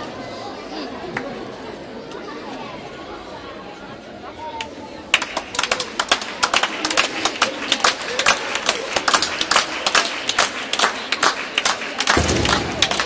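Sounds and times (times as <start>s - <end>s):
people clapping fast: 5.1s - 13.0s.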